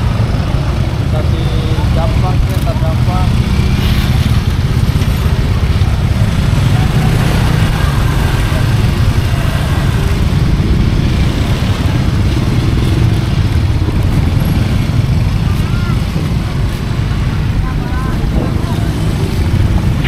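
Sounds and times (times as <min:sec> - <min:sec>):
motorcycles: 0:00.0 - 0:20.0
street traffic rumble: 0:00.0 - 0:20.0.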